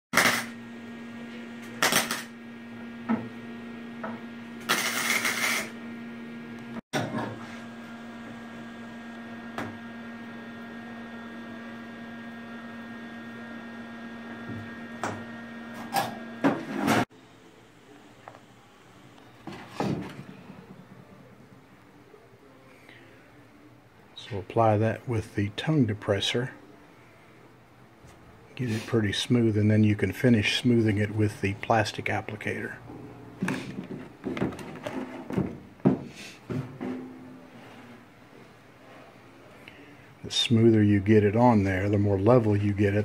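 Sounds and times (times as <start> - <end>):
welder arc crackling hiss: 0.2 - 0.6, 1.8 - 2.3, 4.7 - 5.8
steady electrical hum: 0.2 - 43.0.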